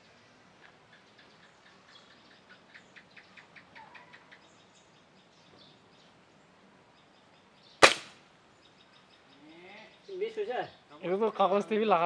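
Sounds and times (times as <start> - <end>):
air rifle shot: 7.8 - 8.2.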